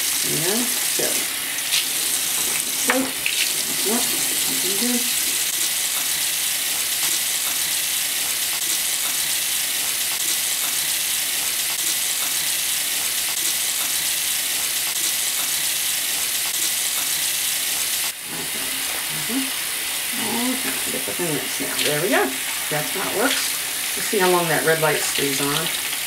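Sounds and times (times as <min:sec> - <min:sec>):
tap water running into sink: 0:00.0 - 0:26.0.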